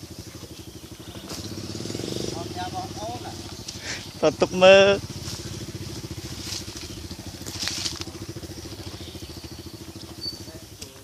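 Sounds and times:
small motorcycle engine putter: 6.4s - 8.3s.

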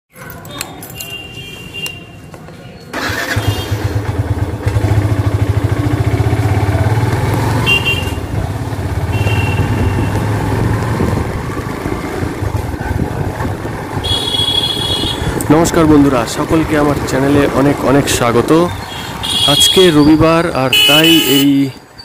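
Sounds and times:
motorcycle engine running: 3.0s - 18.0s.

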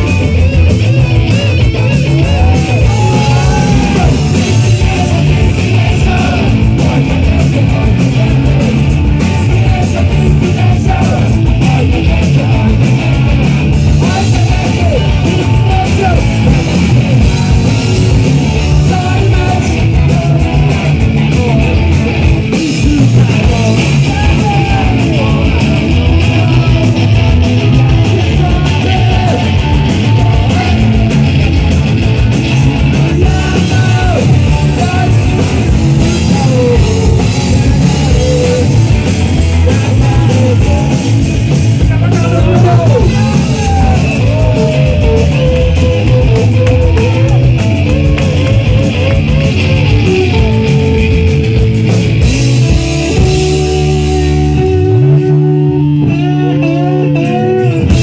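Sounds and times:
bass guitar: 0.0s - 58.0s
drum kit: 0.0s - 58.0s
electric guitars: 0.0s - 58.0s
lead guitar bending notes: 20.8s - 58.0s.

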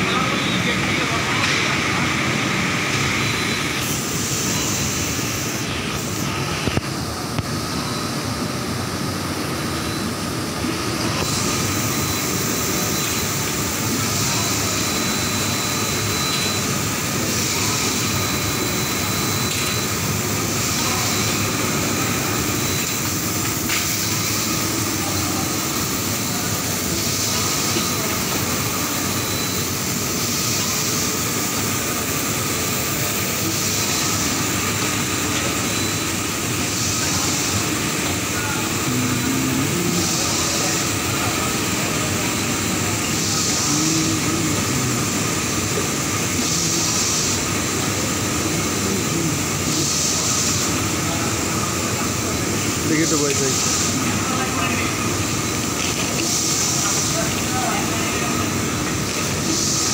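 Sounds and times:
industrial textile machinery running: 0.0s - 59.9s
faint high whine: 9.7s - 53.4s.

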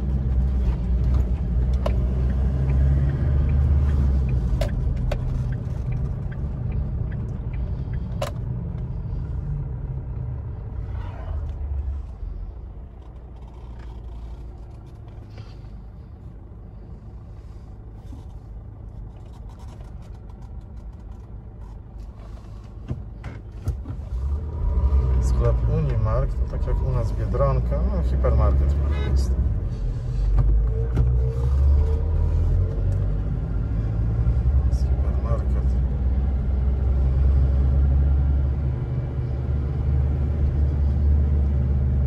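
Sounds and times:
car engine and road rumble: 0.0s - 42.0s.

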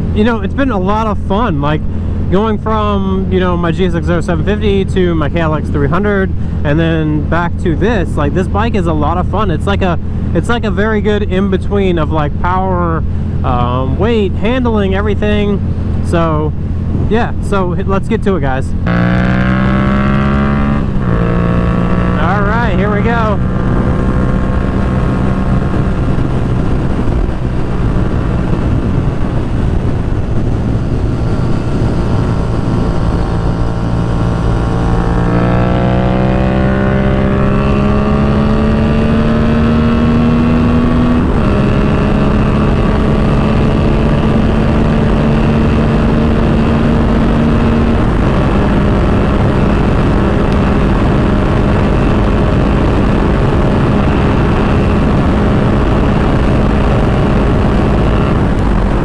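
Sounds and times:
motorcycle engine revving: 18.7s - 59.0s
wind rushing: 18.7s - 59.0s.

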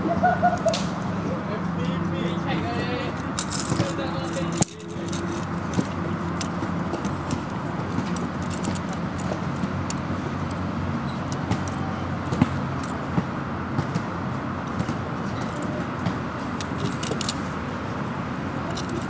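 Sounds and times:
plastic toy parts clicking: 2.5s - 10.6s, 11.2s - 13.0s, 14.7s - 17.6s, 18.6s - 19.0s.

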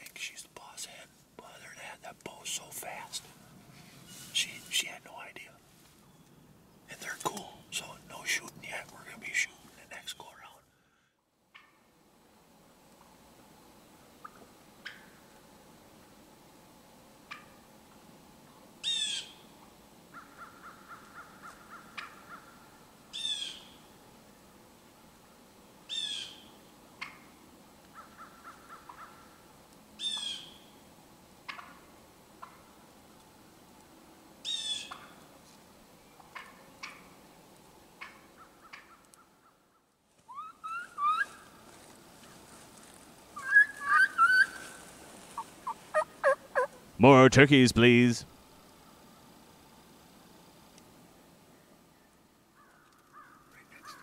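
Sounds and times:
turkey clucks and yelps: 38.0s - 39.3s, 40.3s - 41.5s, 43.4s - 46.9s
high-pitched turkey calls: 38.0s - 39.6s, 40.3s - 41.5s, 43.4s - 46.8s.

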